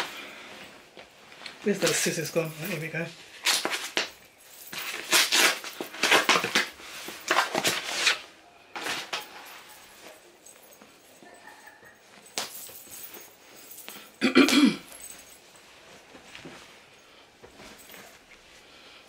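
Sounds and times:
plastic wrapping rustling: 0:00.0 - 0:11.4
fabric blanket handling: 0:14.8 - 0:19.0.

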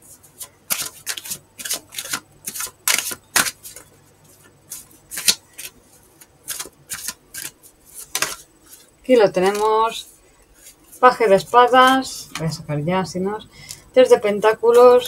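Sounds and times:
cards being shuffled: 0:00.3 - 0:12.5.

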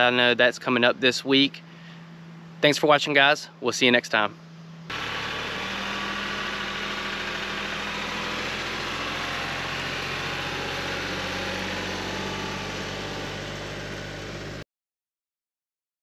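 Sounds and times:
tractor diesel engine running: 0:04.6 - 0:14.6.

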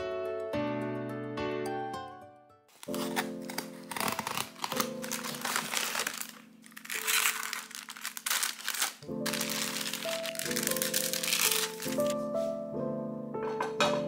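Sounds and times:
background music: 0:00.0 - 0:14.0
plastic wrapping crinkling: 0:02.7 - 0:12.2.

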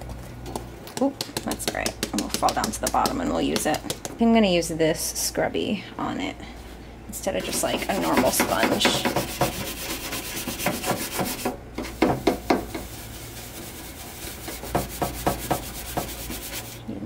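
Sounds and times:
scrubbing pad scouring a pan: 0:07.4 - 0:16.8.

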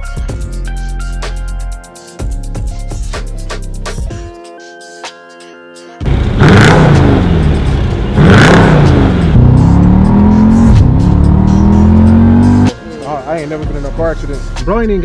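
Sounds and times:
engine revving through loud exhaust: 0:06.0 - 0:12.7.

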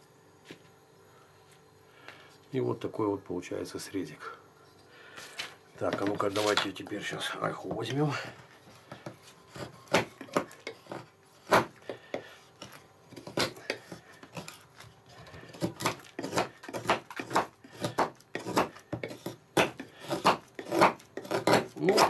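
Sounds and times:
knife shaving wood: 0:07.6 - 0:22.0.

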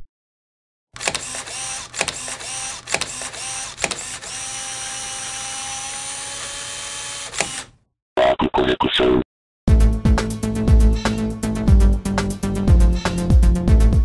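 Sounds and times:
sharp clicks: 0:01.0 - 0:04.3
mechanical whirring hum: 0:01.0 - 0:07.7.

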